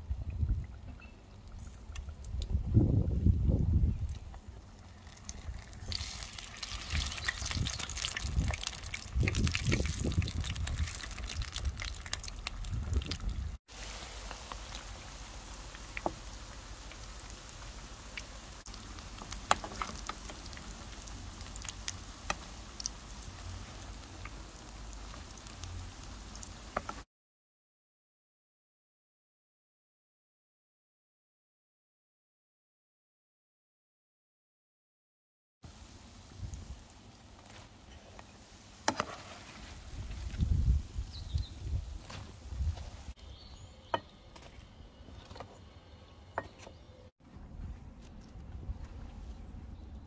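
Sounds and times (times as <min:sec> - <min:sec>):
oil popping and crackling: 0:04.0 - 0:27.0
food sizzling in oil: 0:04.8 - 0:27.0.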